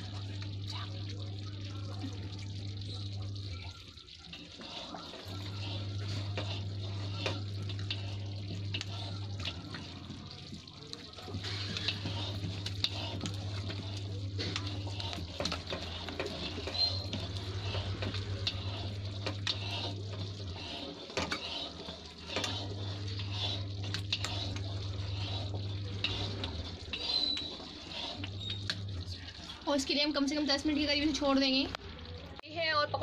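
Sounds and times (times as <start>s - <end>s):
batter beaten in metal bowl: 4.3s - 29.9s
steady low hum: 4.6s - 29.6s.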